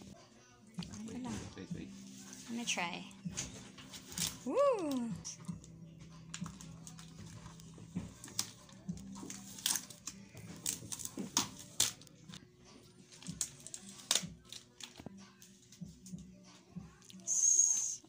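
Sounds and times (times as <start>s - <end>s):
plastic film crinkling: 13.1s - 15.0s
tape peeling off plastic: 13.2s - 15.0s.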